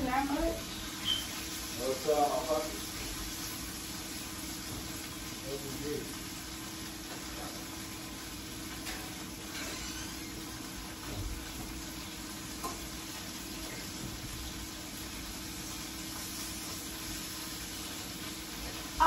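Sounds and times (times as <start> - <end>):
food sizzling in skillet: 0.0 - 19.0.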